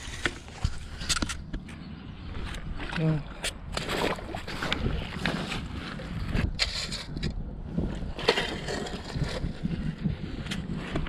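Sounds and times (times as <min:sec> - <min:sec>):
wind rumble on microphone: 0:00.0 - 0:11.0
shovel scraping through wet mud: 0:03.0 - 0:07.3, 0:07.9 - 0:09.7.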